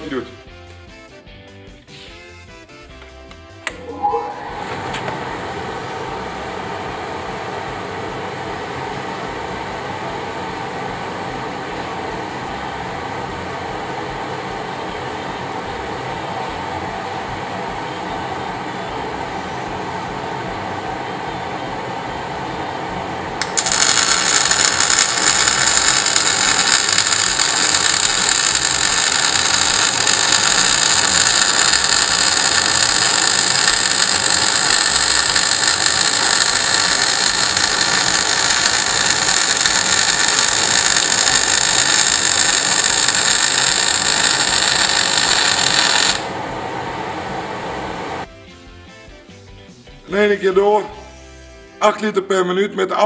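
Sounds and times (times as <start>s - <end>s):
welding arc crackling and hissing: 22.0s - 48.3s.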